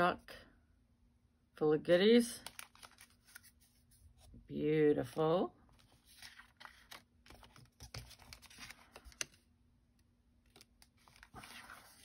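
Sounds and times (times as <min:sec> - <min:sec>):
cardstock clicks and rustling: 0:05.9 - 0:09.4.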